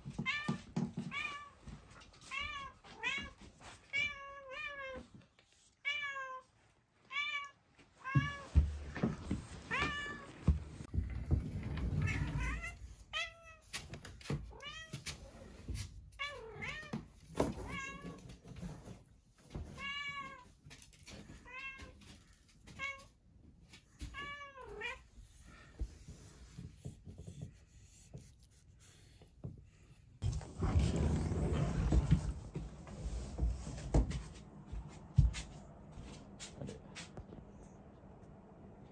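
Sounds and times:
knocks and handling noises: 0:30.2 - 0:37.4.

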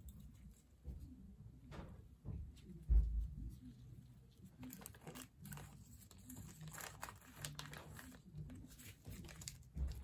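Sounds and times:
gloved hands crinkling: 0:04.6 - 0:10.0.

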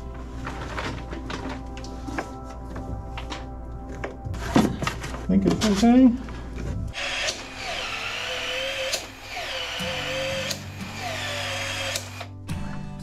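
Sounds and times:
expansion tool motor whine: 0:07.0 - 0:12.3.

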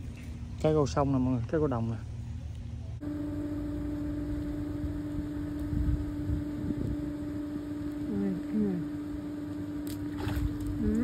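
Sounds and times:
motor engine running: 0:02.7 - 0:11.0.

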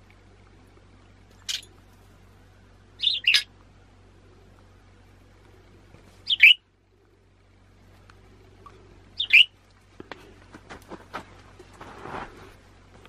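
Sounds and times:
budgerigar chirping: 0:03.0 - 0:03.5, 0:06.2 - 0:06.6, 0:09.2 - 0:09.6.

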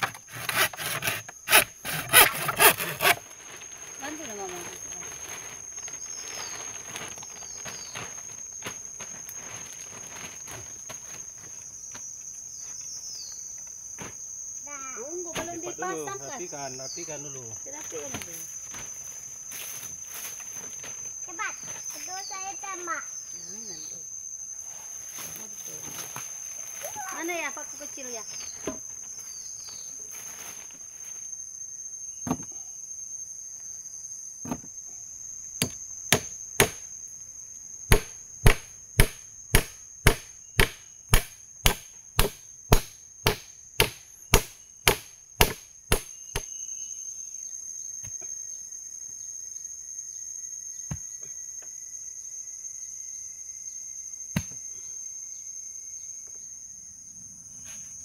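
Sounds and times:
high-pitched insect drone: 0:00.0 - 0:58.0
hammer striking nails: 0:37.9 - 0:46.1.

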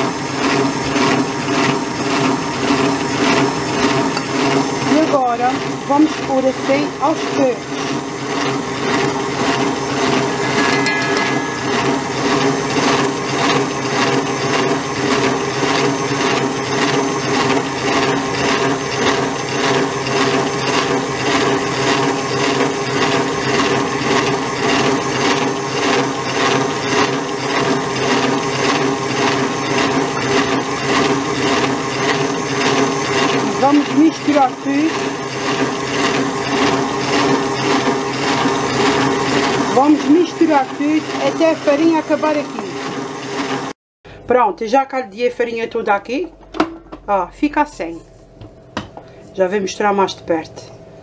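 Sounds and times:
stand mixer whisking batter: 0:00.0 - 0:10.6, 0:11.6 - 0:44.2.

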